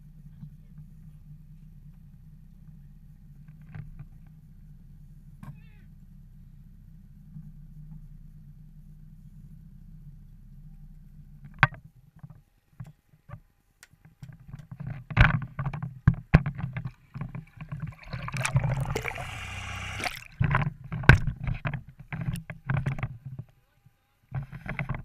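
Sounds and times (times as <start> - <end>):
low steady hum: 17.4 - 20.6.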